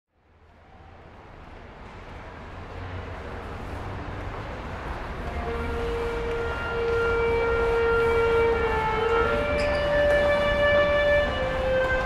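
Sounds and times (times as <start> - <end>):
low train rumble: 0.1 - 12.0
train wheels squealing on rails: 4.9 - 12.0.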